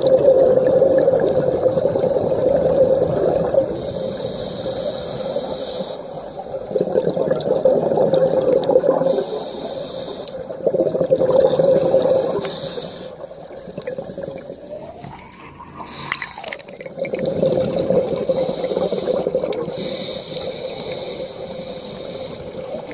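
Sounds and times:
exhale bubbling rush: 0:00.0 - 0:22.9
diver breathing through regulator: 0:03.7 - 0:06.6, 0:09.0 - 0:10.5, 0:11.4 - 0:13.3, 0:14.0 - 0:16.7, 0:17.8 - 0:22.9.

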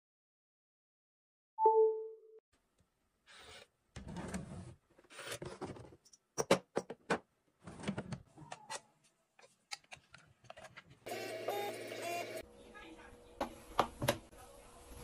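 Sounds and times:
drawer sliding open: 0:04.0 - 0:06.0, 0:07.6 - 0:08.2.

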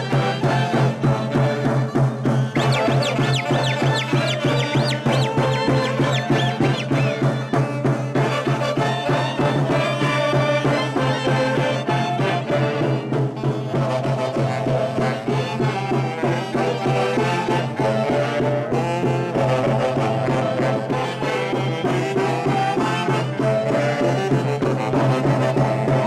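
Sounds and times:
saxophones playing a melody: 0:02.4 - 0:10.7
low accompaniment: 0:02.5 - 0:09.0.

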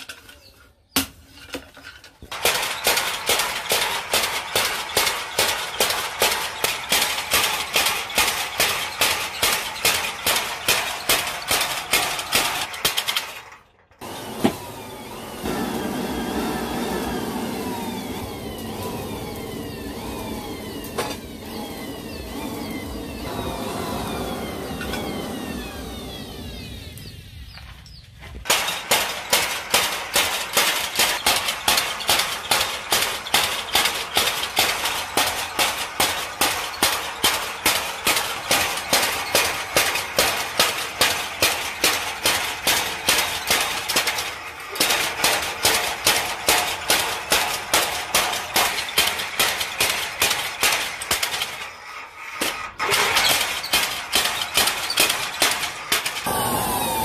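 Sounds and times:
power hammer pounding metal: 0:02.3 - 0:13.4, 0:28.5 - 0:57.0.

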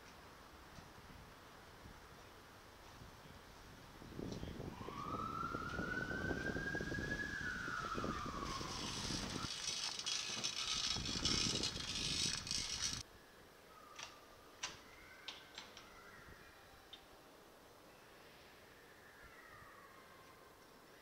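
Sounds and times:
whine rising and falling in pitch: 0:04.7 - 0:13.0.

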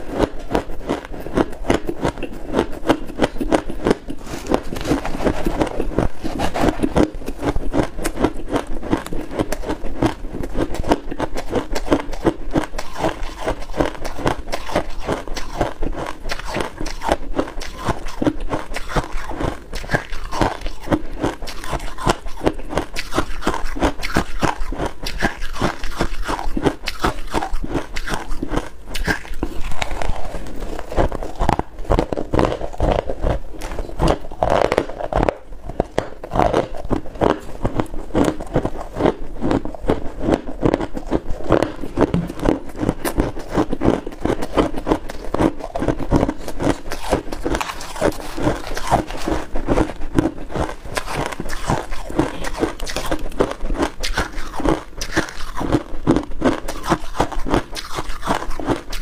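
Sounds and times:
crunchy chewing: 0:00.0 - 0:59.0.

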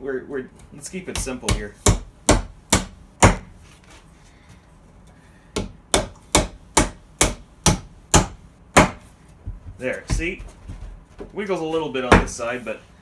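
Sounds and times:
hammer striking wooden dowels: 0:01.1 - 0:03.5, 0:05.6 - 0:09.1.

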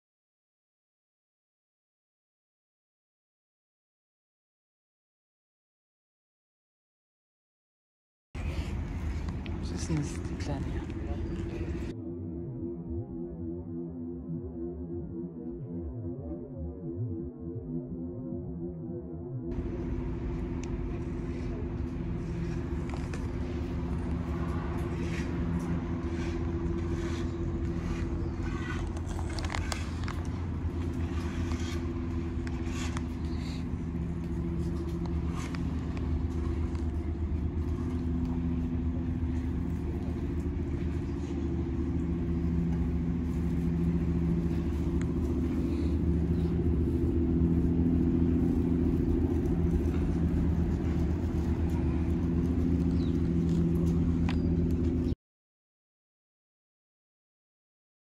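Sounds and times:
vehicle engine humming: 0:08.4 - 0:11.9, 0:19.5 - 0:55.2.

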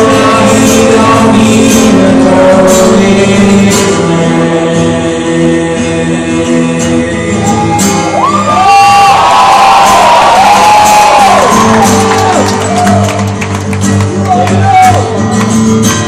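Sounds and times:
person singing: 0:00.0 - 0:08.6
acoustic guitar strummed: 0:00.0 - 0:09.2, 0:09.8 - 0:16.0
audience whooping: 0:07.4 - 0:13.4.

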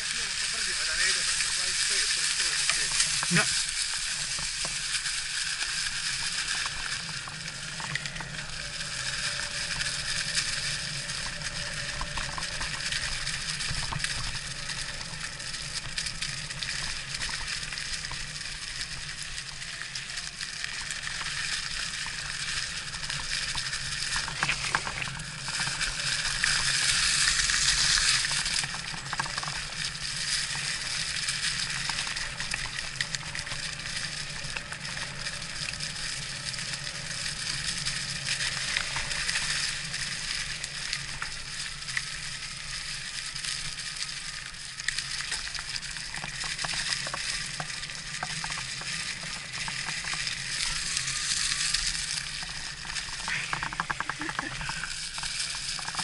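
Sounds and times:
small clicks and knocks: 0:28.0 - 0:30.7, 0:44.8 - 0:56.0.

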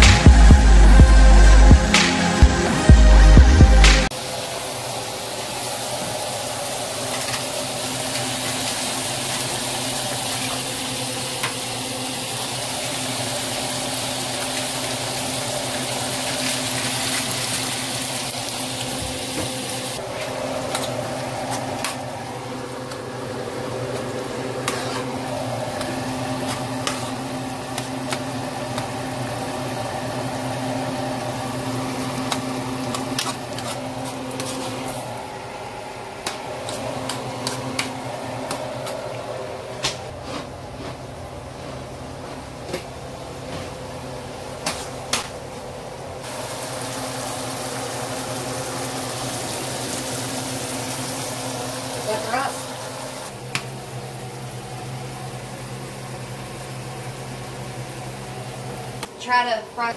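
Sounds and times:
shrimp sizzling in a pan: 0:04.2 - 0:20.0, 0:46.3 - 0:53.3.

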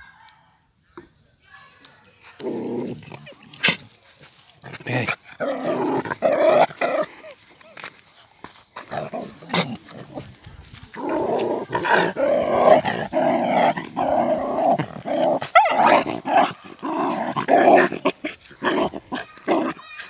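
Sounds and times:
small dog growling and barking: 0:02.4 - 0:04.0, 0:04.6 - 0:07.4, 0:08.9 - 0:19.8.

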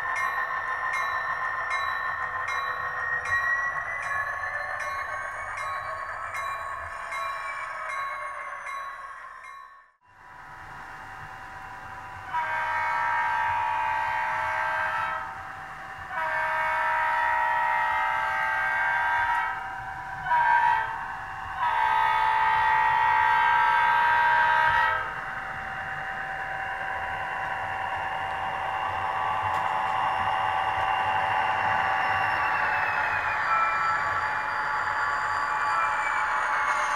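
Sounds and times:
multi-chime air horn: 0:12.3 - 0:15.4, 0:16.1 - 0:25.2.

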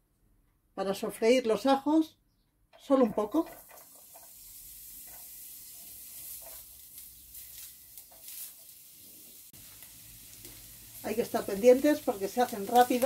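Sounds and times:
spatula scraping pan: 0:02.9 - 0:09.4
garlic sizzling in oil: 0:02.9 - 0:13.0.

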